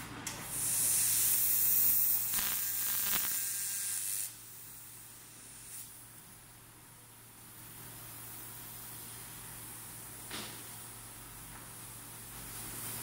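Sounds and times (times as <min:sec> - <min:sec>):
laser cutter gas jet hissing: 0:00.5 - 0:06.0.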